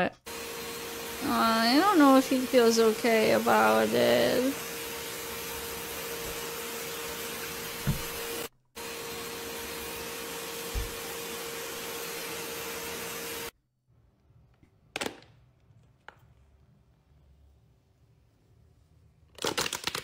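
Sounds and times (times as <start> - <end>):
pet dryer blowing: 0.2 - 13.5
dull thumps: 7.6 - 8.4.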